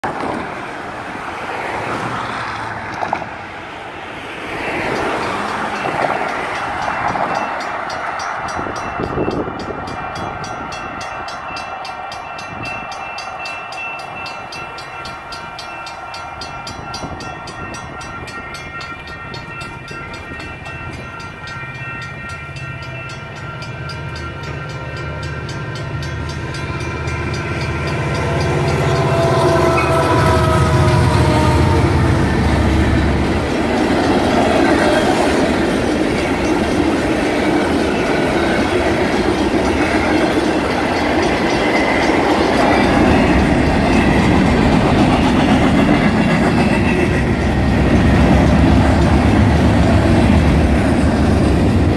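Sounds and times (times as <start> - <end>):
cars passing: 0.0 - 51.9
railroad crossing bell clanging: 4.3 - 51.9
diesel locomotive rumble: 16.0 - 51.9.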